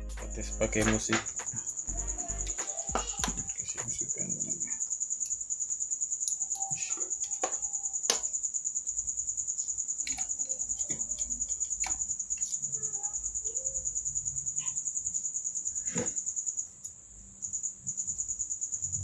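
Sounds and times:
cricket chirping: 0.0s - 19.0s.

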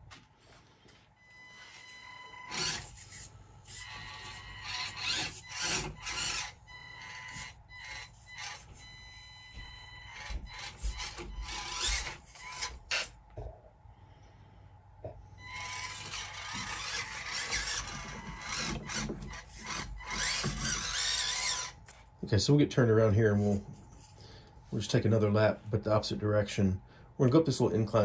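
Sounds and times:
small electric motor whining: 1.3s - 13.2s, 15.4s - 22.0s.

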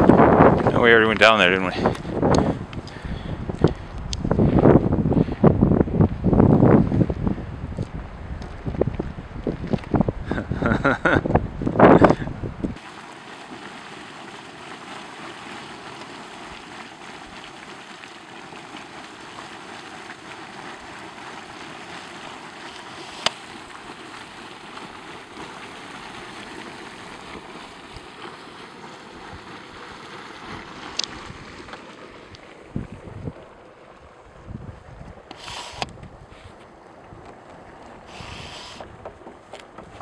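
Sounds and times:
steam vent hissing: 35.4s - 35.9s, 38.1s - 38.8s.

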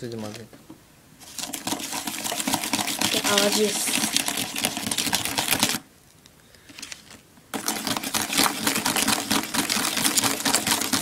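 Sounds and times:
spoon stirring in plastic tray: 1.2s - 5.8s, 7.5s - 11.0s.

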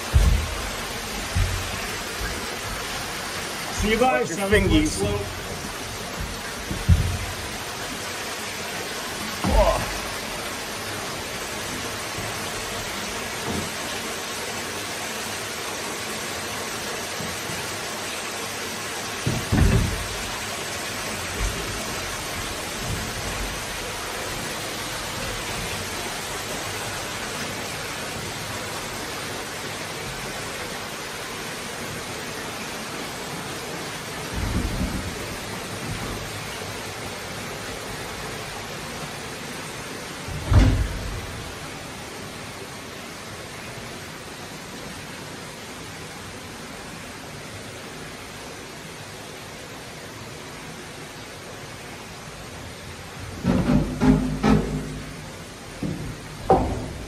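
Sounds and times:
low thumps: 0.0s - 7.6s
rushing water hiss: 0.0s - 57.0s.

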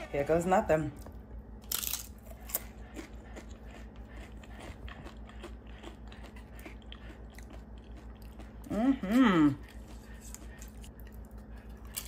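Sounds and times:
crunching tortilla chip: 1.6s - 8.6s.

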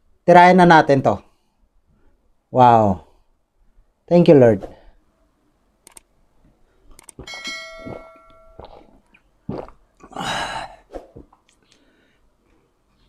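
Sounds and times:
drinking sounds: 7.1s - 11.8s
glass jar clinking: 7.2s - 8.9s
noisy gulp or breath: 8.6s - 11.9s.

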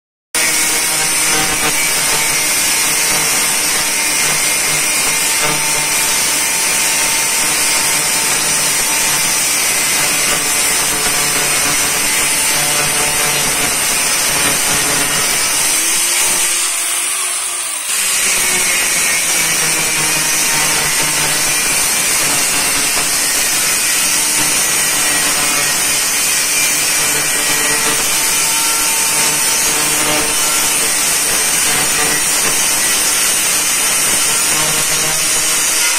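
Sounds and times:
angle grinder cutting metal: 0.4s - 35.9s.

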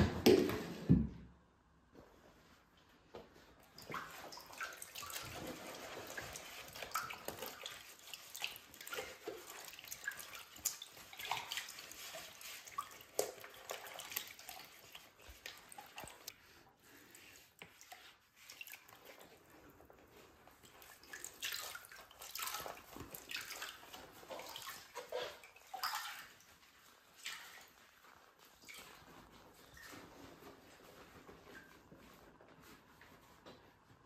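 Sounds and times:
water sloshing in plastic basin: 3.3s - 34.0s
sponge being squeezed: 3.7s - 33.3s.

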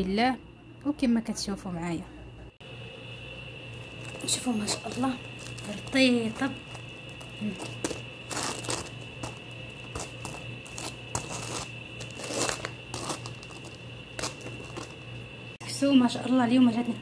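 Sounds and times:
hand rustling flatbreads: 3.8s - 15.1s.

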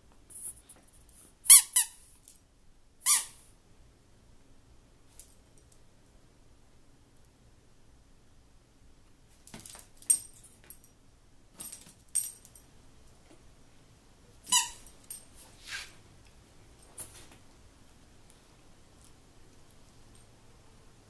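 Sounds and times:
rubber squeak toy squeaking: 1.5s - 2.0s, 3.0s - 3.4s, 14.5s - 14.8s.

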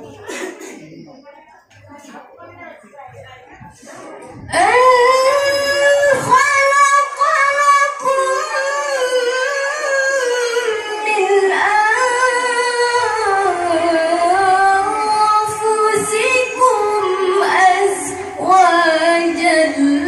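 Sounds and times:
woman chanting melodic recitation: 4.3s - 20.0s.

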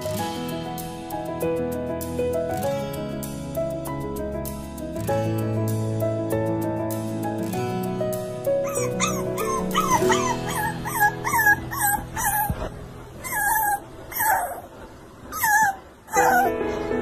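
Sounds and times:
background music: 0.0s - 14.5s, 15.4s - 17.0s
puppy whimpering: 8.6s - 16.6s.

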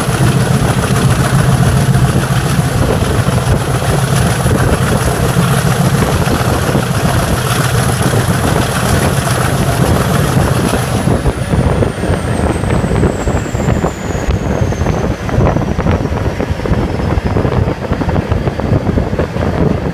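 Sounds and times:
diesel locomotive engine rumble: 0.0s - 19.9s.

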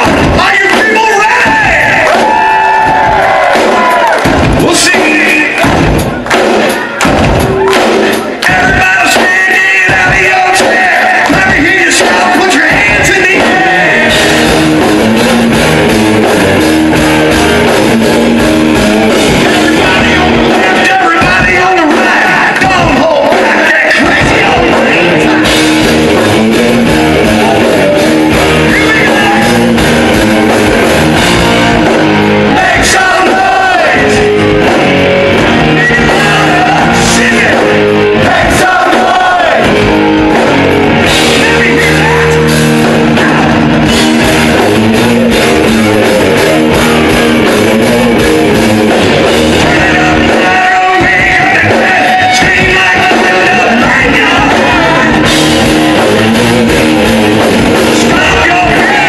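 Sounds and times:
hard rock band playing live: 0.0s - 59.0s
male singer: 4.6s - 5.6s, 8.4s - 14.2s, 19.4s - 25.7s, 32.5s - 34.3s, 35.7s - 39.6s, 49.6s - 55.3s, 57.9s - 59.0s.

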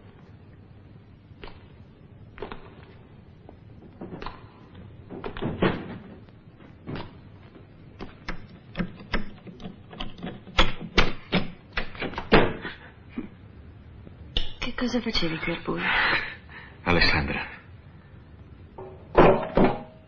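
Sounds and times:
sharp clicks and knocks: 8.0s - 12.5s.

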